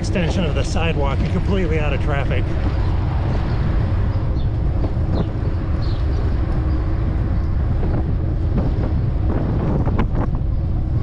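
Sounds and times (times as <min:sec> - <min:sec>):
low wind rumble: 0:00.0 - 0:11.0.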